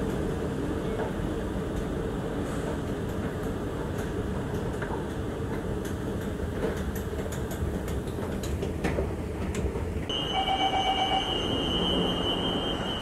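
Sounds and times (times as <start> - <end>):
metro station rumble and hum: 0.0 - 13.0.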